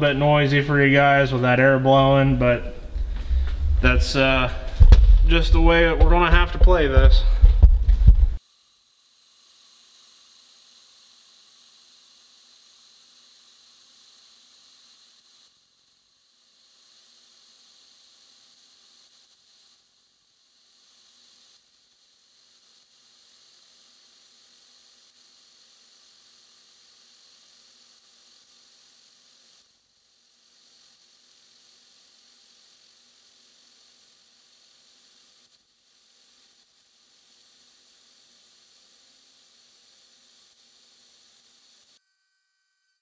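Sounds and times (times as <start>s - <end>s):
compressed air hissing: 2.4s - 6.0s.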